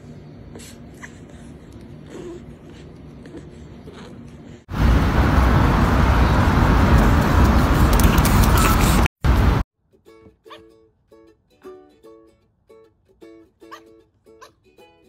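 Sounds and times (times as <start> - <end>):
loud rushing noise with rumble: 4.7 - 9.6.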